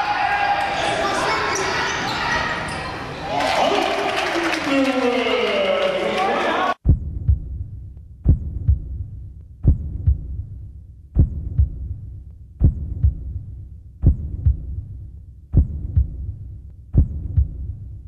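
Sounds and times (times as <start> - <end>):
deep thumping beat: 6.8 - 18.0.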